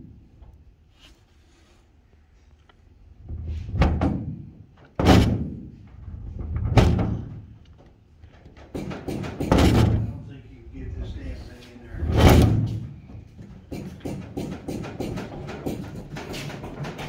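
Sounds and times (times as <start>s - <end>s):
wing flap clunks and bangs: 8.3s - 10.1s, 12.1s - 17.0s.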